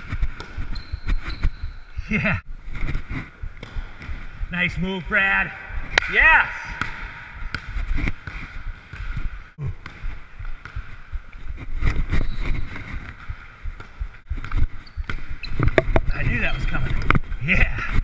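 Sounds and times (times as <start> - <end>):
basketball bouncing: 0.0 - 1.8, 3.5 - 4.5, 6.7 - 16.1.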